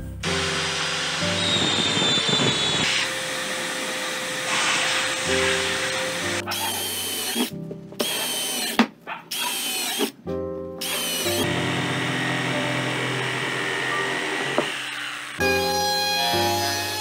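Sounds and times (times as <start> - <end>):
background music: 0.0 - 2.0, 5.0 - 8.0, 10.2 - 14.6, 15.4 - 17.0
cordless drill running: 0.2 - 10.1, 10.8 - 17.0
electric jigsaw cutting: 0.2 - 10.2, 10.8 - 17.0.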